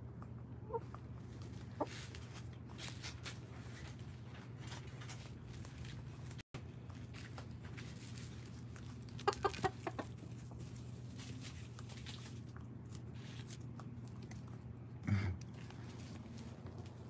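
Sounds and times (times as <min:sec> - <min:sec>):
steady low hum: 0:00.0 - 0:17.0
hens clucking: 0:00.3 - 0:02.6, 0:08.0 - 0:11.0.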